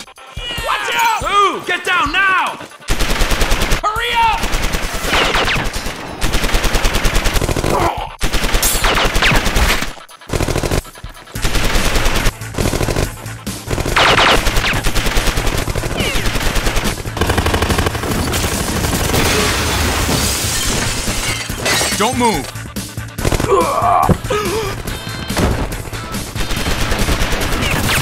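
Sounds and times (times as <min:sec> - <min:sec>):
automatic gunfire bursts: 0:02.9 - 0:19.5, 0:25.8 - 0:28.0.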